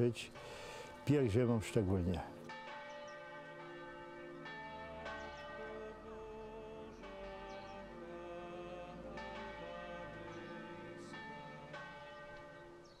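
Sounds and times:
church bells ringing: 0.0 - 13.0.

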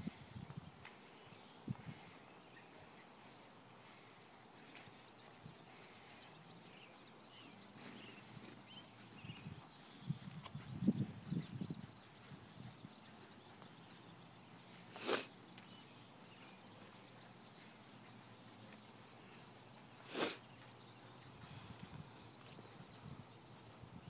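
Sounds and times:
faint hoofbeats: 0.0 - 24.0
horse snorting: 14.9 - 15.3, 20.0 - 20.5.

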